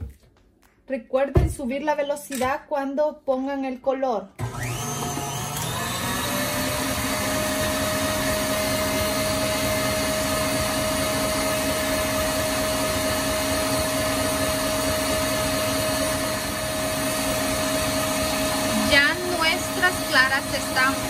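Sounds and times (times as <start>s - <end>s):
stand mixer whisking: 4.4s - 21.0s.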